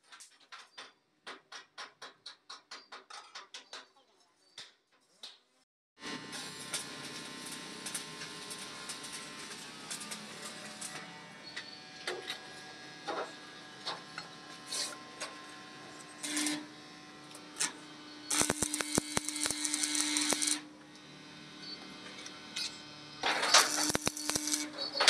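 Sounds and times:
steady hum: 12.6 - 24.8
dense crackling: 18.3 - 20.6, 23.4 - 24.7.

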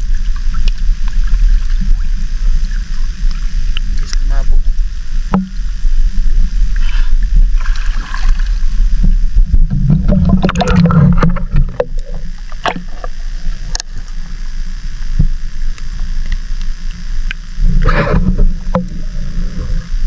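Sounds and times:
low rumble: 0.0 - 20.0
seawater sloshing and splashing: 6.7 - 13.2.

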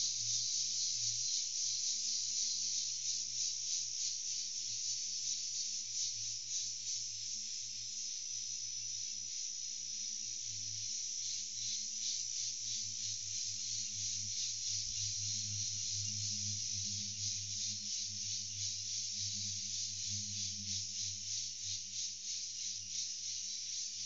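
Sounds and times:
insects buzzing: 0.0 - 7.3, 8.8 - 24.0.

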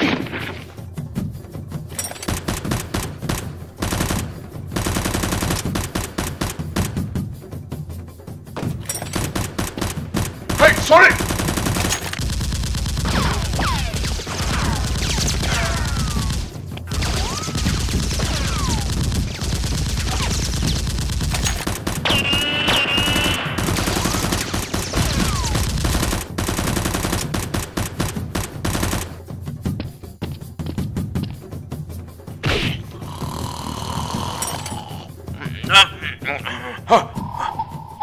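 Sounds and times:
rapid automatic gunfire: 2.2 - 7.0, 9.1 - 29.2.

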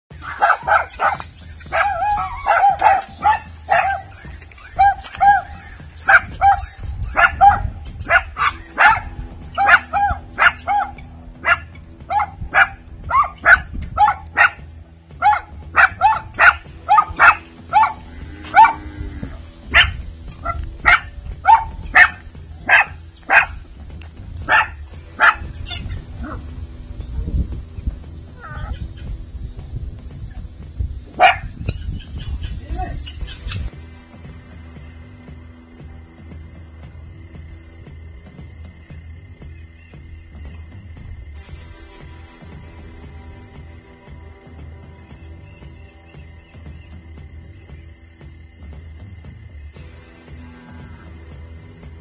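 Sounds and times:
small dog barking angrily: 0.2 - 14.6, 15.2 - 18.8, 19.7 - 23.6, 24.5 - 25.5, 31.2 - 31.5.

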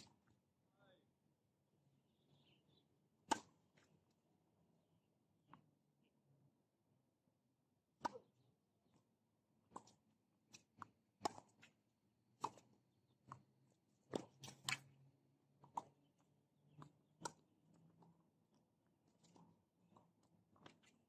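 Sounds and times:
tennis balls bouncing on hard court: 3.2 - 3.8, 8.0 - 8.4, 9.6 - 11.7, 12.4 - 13.5, 16.7 - 18.2
tennis balls struck by rackets: 3.2 - 4.0, 8.0 - 9.0, 9.6 - 11.7, 12.4 - 14.9, 16.8 - 18.0.

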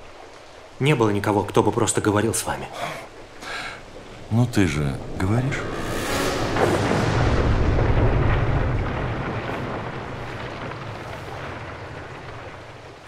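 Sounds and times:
deep cinematic rumble: 3.8 - 13.0.

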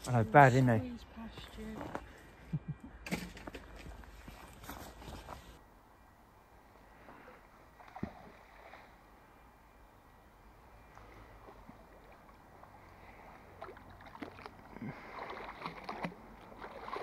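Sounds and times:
faint water movement: 6.6 - 17.0.

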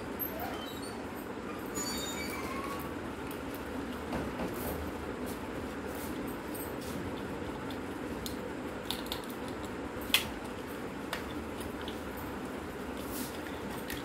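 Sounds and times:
steady background noise: 0.0 - 14.0.

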